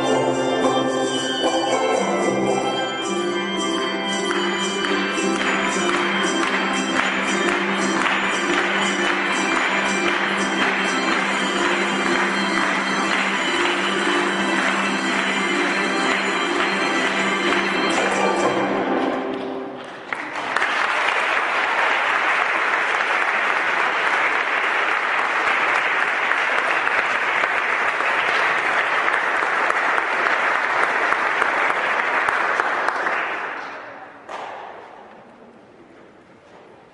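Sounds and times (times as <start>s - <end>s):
musical chord: 0.0s - 19.8s
audience applauding: 3.8s - 34.0s.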